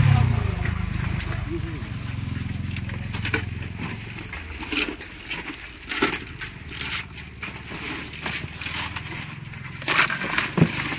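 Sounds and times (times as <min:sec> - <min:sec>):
low engine hum: 0:00.0 - 0:10.9
crab shells clicking and knocking: 0:02.5 - 0:10.9.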